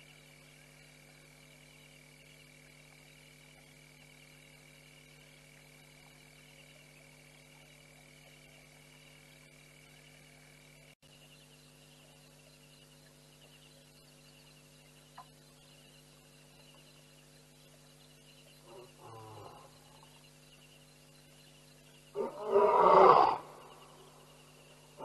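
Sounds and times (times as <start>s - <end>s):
steady low hum: 0.0s - 25.0s
frogs calling: 5.8s - 25.0s
lion moaning call: 22.2s - 23.6s.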